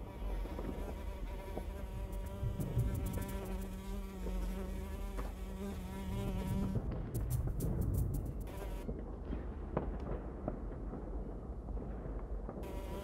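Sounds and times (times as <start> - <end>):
steady buzz: 0.0 - 8.9
sharp high clicks: 7.2 - 8.5.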